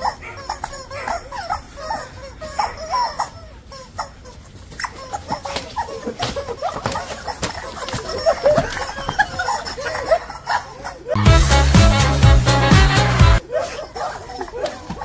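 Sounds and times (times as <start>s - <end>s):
rubber chicken toy squealing: 0.0s - 11.2s.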